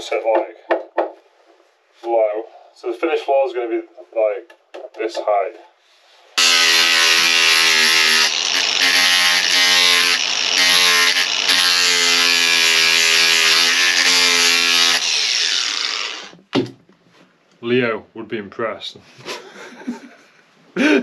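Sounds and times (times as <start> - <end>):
angle grinder grinding wood: 6.4 - 16.4
grinder spinning down: 6.4 - 16.4.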